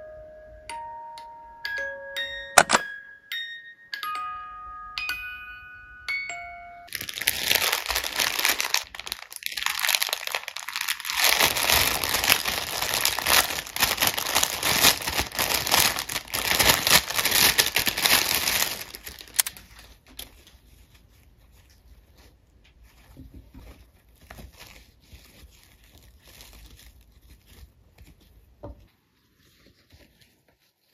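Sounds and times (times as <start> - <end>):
plastic bag crinkling: 6.9 - 28.7, 29.3 - 30.9
faint rustling and handling: 6.9 - 30.9.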